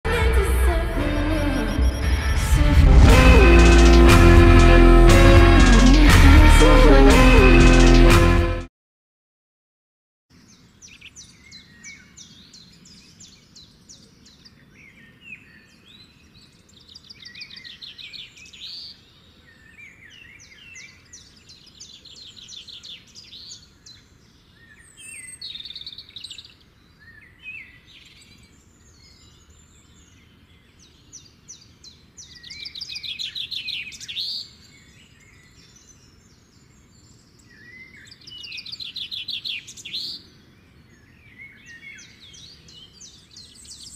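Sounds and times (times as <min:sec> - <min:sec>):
songbirds chirping and trilling: 0:10.3 - 0:43.9.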